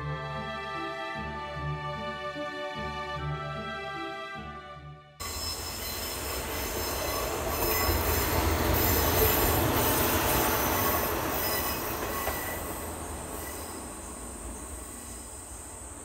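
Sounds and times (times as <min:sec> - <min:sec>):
high wheel squeal: 0:05.2 - 0:15.6
diesel railcar engine rumble: 0:05.2 - 0:16.0.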